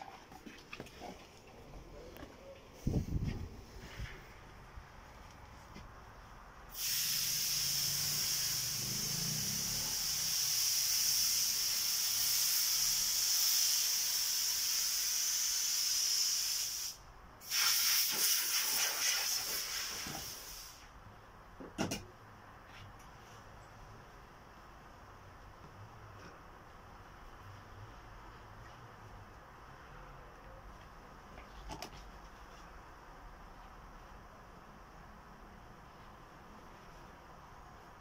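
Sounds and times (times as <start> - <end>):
loud steady hiss: 6.4 - 21.2.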